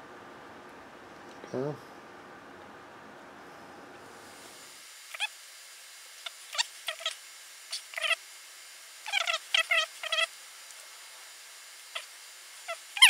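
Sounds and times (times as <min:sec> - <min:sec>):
animal chirping calls: 0:05.1 - 0:05.3, 0:06.3 - 0:08.2, 0:09.0 - 0:10.3, 0:11.9 - 0:13.0.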